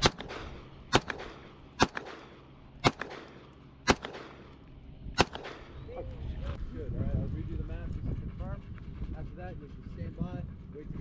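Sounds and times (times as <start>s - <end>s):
pistol shots with echo: 0.0s - 4.5s, 5.2s - 5.8s.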